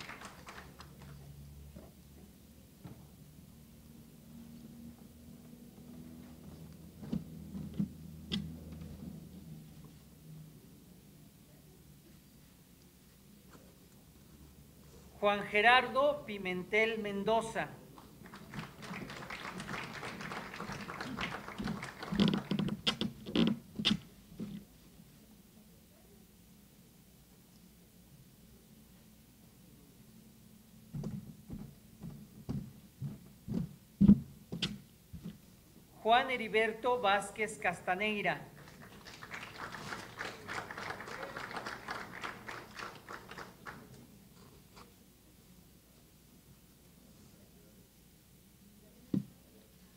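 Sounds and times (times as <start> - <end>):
audience applause: 0.0 - 1.2, 18.2 - 22.8, 38.6 - 44.0.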